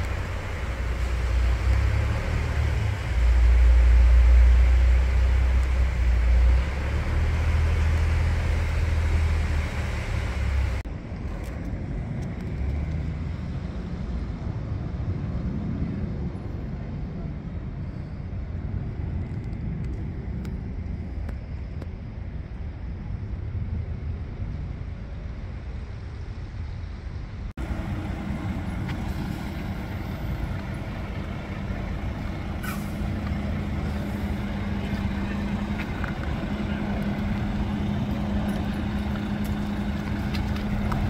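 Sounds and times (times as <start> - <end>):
truck engine running: 0.0 - 10.8, 27.6 - 41.0
distant road traffic: 0.0 - 41.0.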